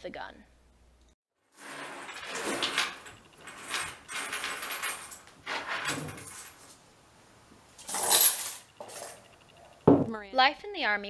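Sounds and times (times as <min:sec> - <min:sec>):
coins jingling: 0:01.6 - 0:06.7, 0:07.8 - 0:09.8.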